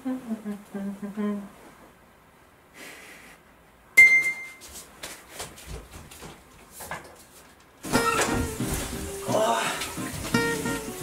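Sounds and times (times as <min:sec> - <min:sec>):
bedding rustling: 0:04.6 - 0:11.0
music: 0:07.8 - 0:11.0.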